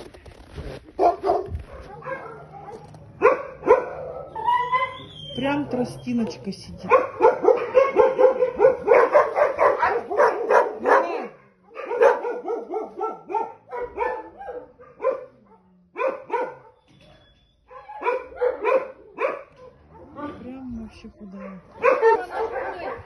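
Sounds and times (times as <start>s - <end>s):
dogs barking: 1.0s - 17.0s, 17.6s - 20.4s, 21.0s - 23.0s.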